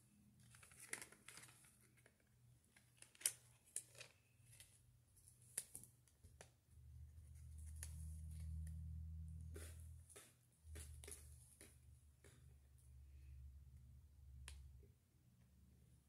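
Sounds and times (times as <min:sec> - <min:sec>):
paper booklet leafed through: 0:00.4 - 0:08.8
low steady hum: 0:06.6 - 0:16.0.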